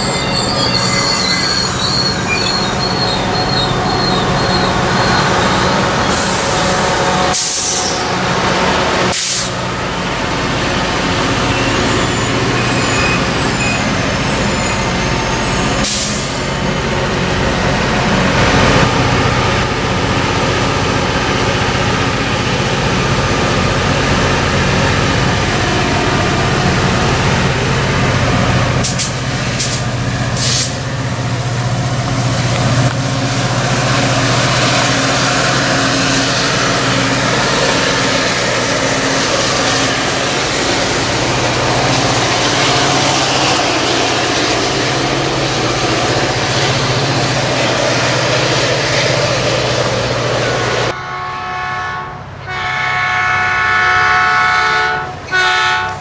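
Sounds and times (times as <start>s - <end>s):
diesel locomotive engine drone: 0.0s - 56.0s
air hissing: 6.0s - 8.1s, 9.1s - 9.6s, 15.8s - 16.5s, 28.8s - 30.9s.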